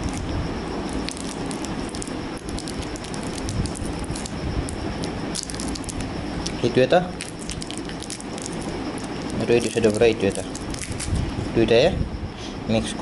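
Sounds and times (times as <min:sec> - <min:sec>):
paper wrapper crackling: 0:00.9 - 0:06.6, 0:07.2 - 0:11.2.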